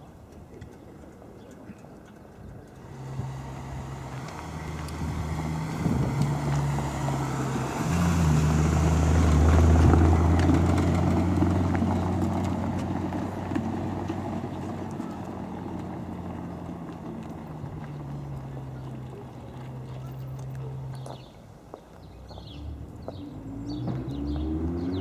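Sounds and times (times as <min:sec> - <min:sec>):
car engine at low revs: 0:02.7 - 0:21.4, 0:22.0 - 0:25.0
tyre rumble on cobblestones: 0:04.2 - 0:21.3.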